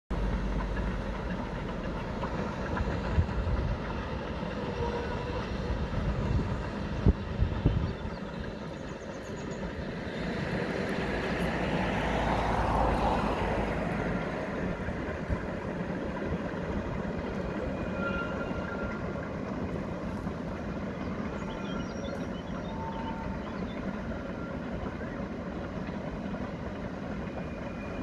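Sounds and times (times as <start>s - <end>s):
distant steam train rumble: 0.1s - 28.0s.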